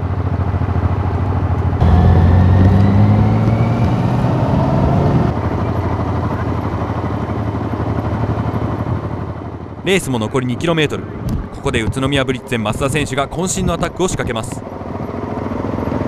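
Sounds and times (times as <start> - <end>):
motorcycle engine running: 0.0 - 9.8, 14.6 - 16.0.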